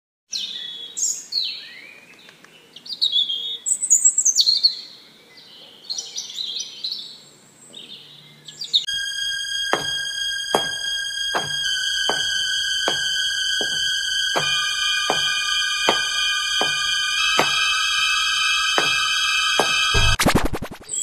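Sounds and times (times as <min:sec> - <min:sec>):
birds chirping: 0:00.3 - 0:20.0
steady electronic music tone: 0:08.9 - 0:20.9.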